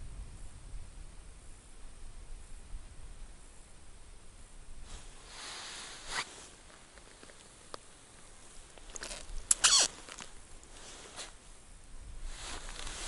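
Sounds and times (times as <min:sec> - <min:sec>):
winter clothing rustling: 0:04.8 - 0:11.5, 0:12.3 - 0:13.0
short scraping sounds: 0:04.9 - 0:06.6
snow crunching: 0:04.9 - 0:07.0, 0:12.3 - 0:13.0.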